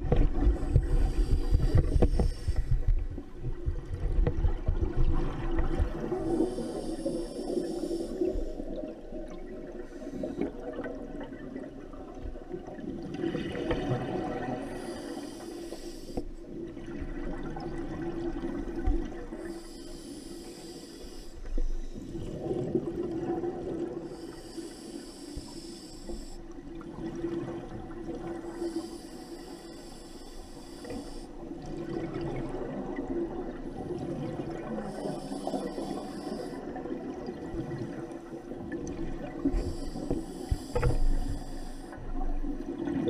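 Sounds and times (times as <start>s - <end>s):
exhaled bubbles gurgling: 0.0s - 20.2s, 21.9s - 24.9s, 25.6s - 29.2s, 31.1s - 43.0s
regulator hissing on inhale: 0.5s - 3.0s, 6.1s - 8.8s, 14.6s - 16.4s, 19.3s - 22.2s, 24.0s - 26.6s, 28.4s - 31.5s, 33.7s - 36.9s, 39.4s - 42.2s.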